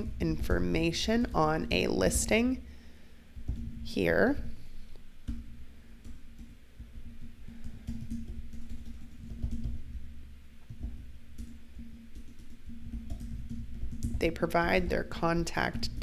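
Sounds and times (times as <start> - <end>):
computer keyboard typing: 6.0 - 10.0, 10.7 - 14.8.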